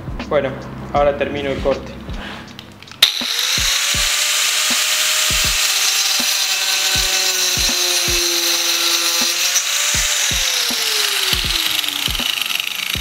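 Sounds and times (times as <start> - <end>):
angle grinder cutting wood: 2.9 - 13.0.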